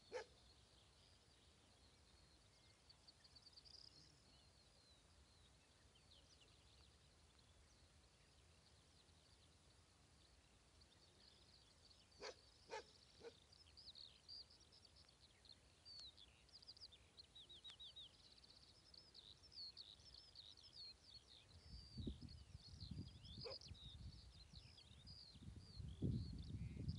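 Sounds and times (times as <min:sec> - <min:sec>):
songbirds chirping and trilling: 0:00.0 - 0:26.9
dog barking faintly: 0:00.1 - 0:00.4, 0:12.2 - 0:13.4.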